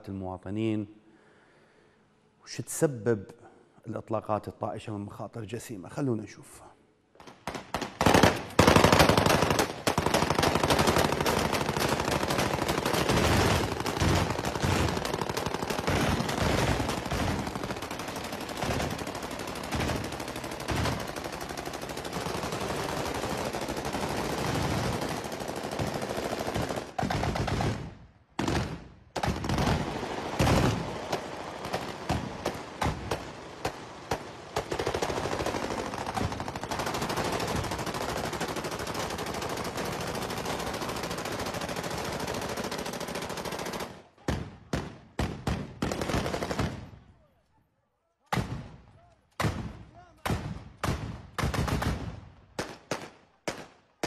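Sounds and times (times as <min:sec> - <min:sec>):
automatic gunfire bursts: 0:07.4 - 0:44.1, 0:44.7 - 0:46.9.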